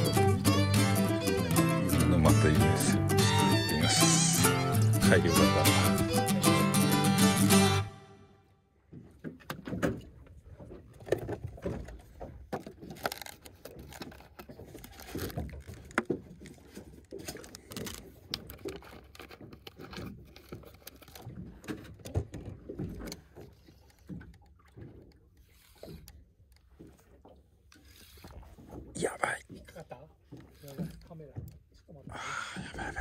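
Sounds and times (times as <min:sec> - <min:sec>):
knocks and clatter on boat: 0:08.8 - 0:33.0.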